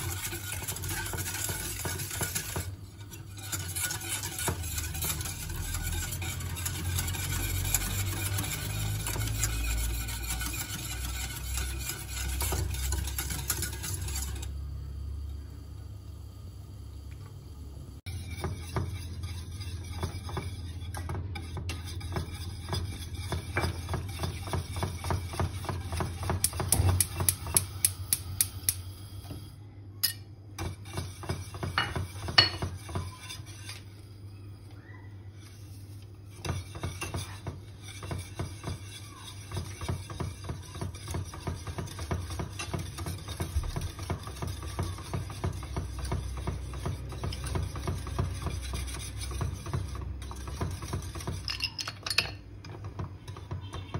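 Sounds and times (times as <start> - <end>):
wire whisk scraping a saucepan: 0.0 - 14.6, 18.0 - 28.7, 30.0 - 53.9.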